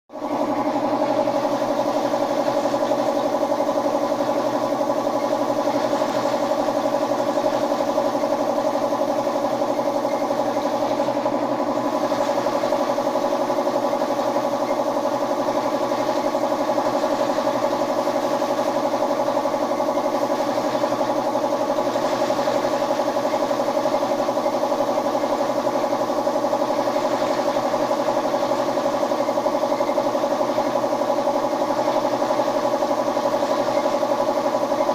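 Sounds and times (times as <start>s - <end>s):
air compressor running: 0.1s - 34.9s.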